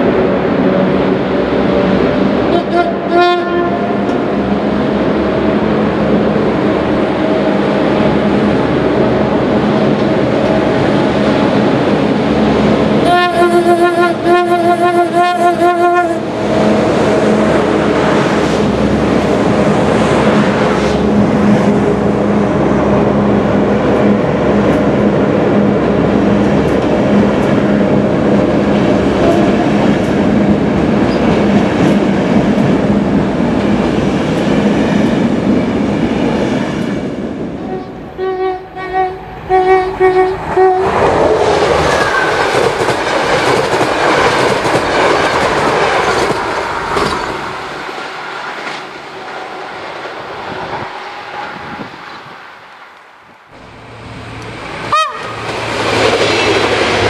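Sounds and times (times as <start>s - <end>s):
train wheels rumbling and clattering: 0.0s - 13.4s, 16.2s - 38.2s, 40.3s - 57.0s
locomotive engine humming: 0.0s - 57.0s
train horn: 2.4s - 4.1s, 13.0s - 16.4s, 29.2s - 29.7s, 37.6s - 41.0s, 54.9s - 55.5s.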